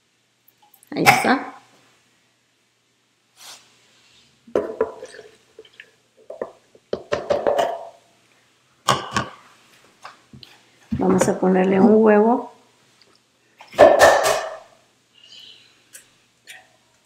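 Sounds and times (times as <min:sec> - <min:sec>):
metal cup knocking on jar: 0:06.3 - 0:07.9.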